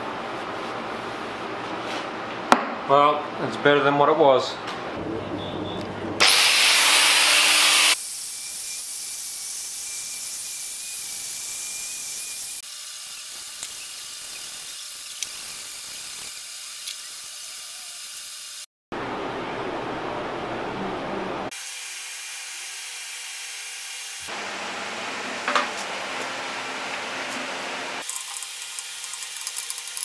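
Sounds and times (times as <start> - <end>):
angle grinder grinding metal: 6.2 - 18.6.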